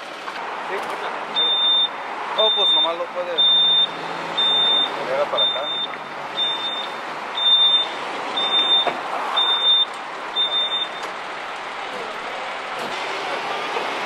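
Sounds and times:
steady vehicle noise: 0:00.0 - 0:14.0
backup alarm beeps: 0:01.4 - 0:11.1.

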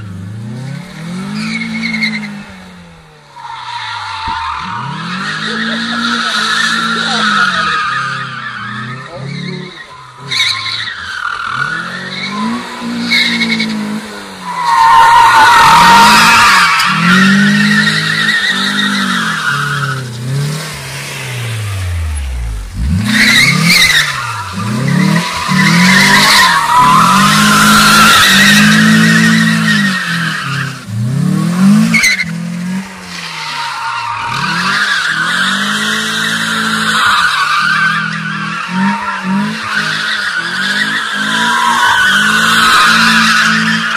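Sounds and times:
car engine revving: 0:00.0 - 0:43.9
tyres squealing: 0:14.4 - 0:20.3, 0:22.9 - 0:30.8.

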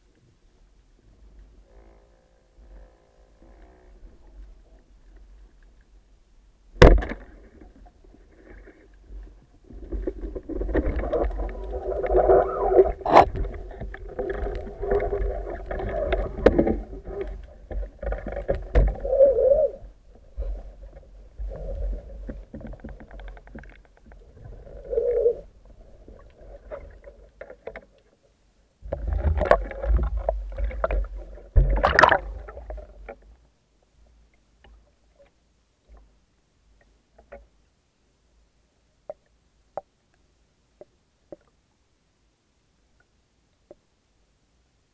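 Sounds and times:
rumbling underwater noise: 0:06.7 - 0:27.6, 0:28.8 - 0:33.4.

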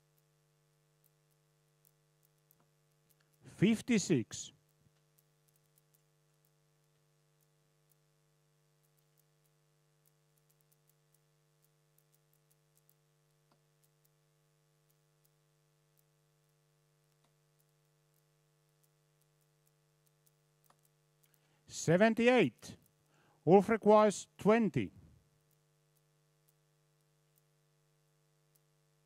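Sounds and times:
faint electrical hum: 0:00.0 - 0:29.0
faint clicks: 0:01.0 - 0:03.4, 0:04.6 - 0:08.1, 0:08.8 - 0:14.2, 0:14.8 - 0:21.6, 0:25.4 - 0:28.7.

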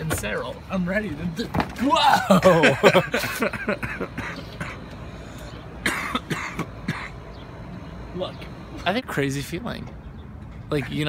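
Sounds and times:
man crying out: 0:01.8 - 0:03.2.

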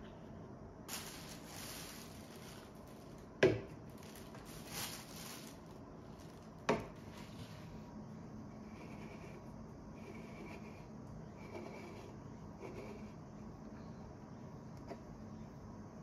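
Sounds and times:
plastic bag rustling: 0:00.9 - 0:07.8.

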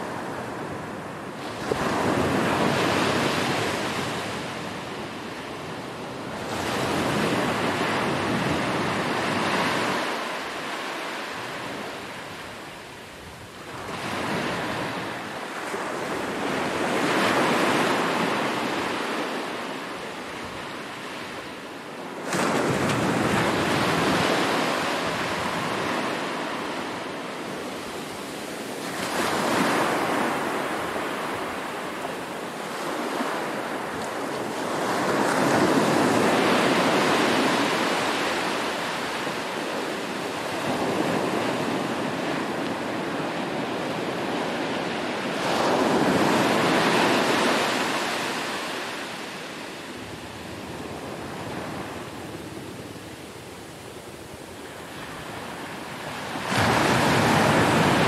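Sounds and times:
small waves breaking on sand: 0:13.5 - 0:58.0.

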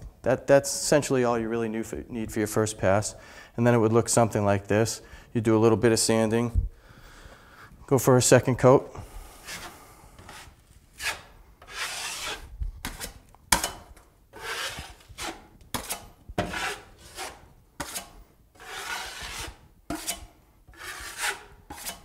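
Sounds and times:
knife scraping compound on drywall: 0:09.4 - 0:22.0.

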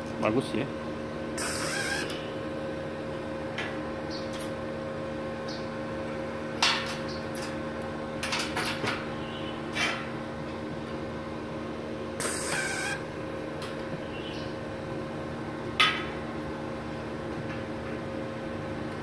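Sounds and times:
welding machine hum: 0:00.0 - 0:03.7, 0:10.4 - 0:14.0.

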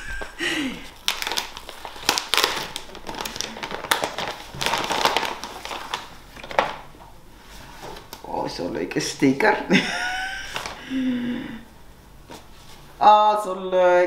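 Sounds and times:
gift wrapping rustling: 0:00.0 - 0:08.1, 0:10.1 - 0:10.9.

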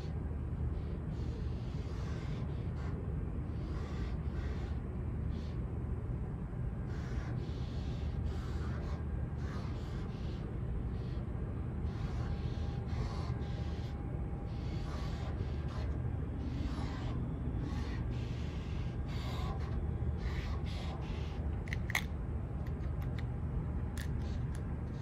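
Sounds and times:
steady low rumble: 0:00.0 - 0:25.0
marker scratching on steel: 0:11.9 - 0:21.4.

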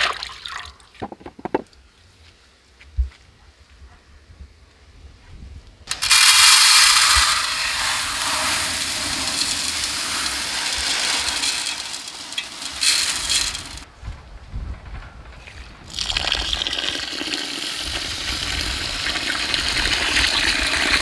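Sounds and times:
lentils poured into metal pot: 0:05.9 - 0:13.9.

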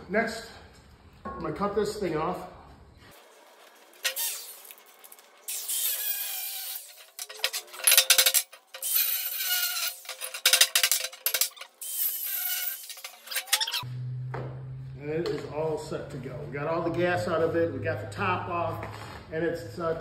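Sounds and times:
power tool cutting steel: 0:03.2 - 0:13.8.

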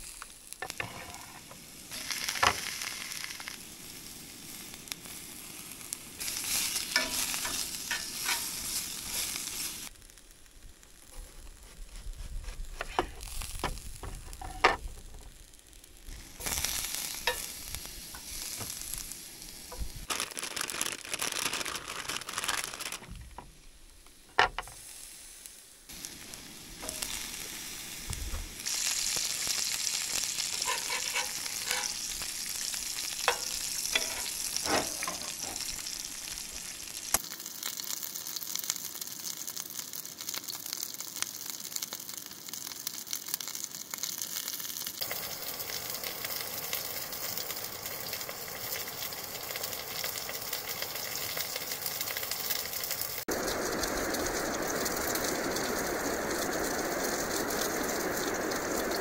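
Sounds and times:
food sizzling in a pan: 0:00.0 - 0:59.0
utensil clicking and scraping pan: 0:00.6 - 0:01.5, 0:06.9 - 0:08.6, 0:30.2 - 0:32.3, 0:33.2 - 0:35.7.

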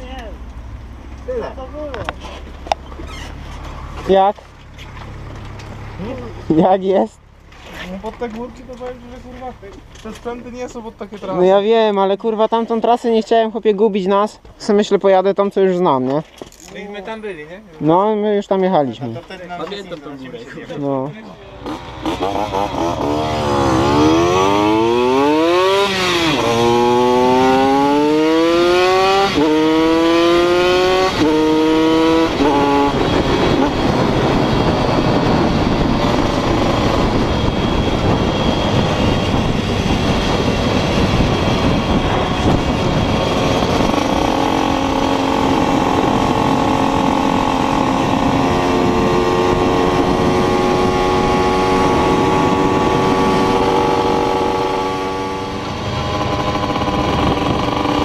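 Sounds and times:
small motorcycle engine revving: 0:21.5 - 0:58.0
wind rush on microphone: 0:22.2 - 0:58.0.

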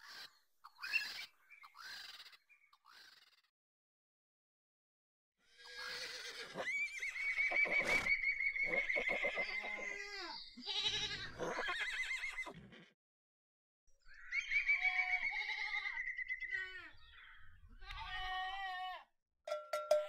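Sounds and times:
vultures squealing: 0:05.6 - 0:12.6.

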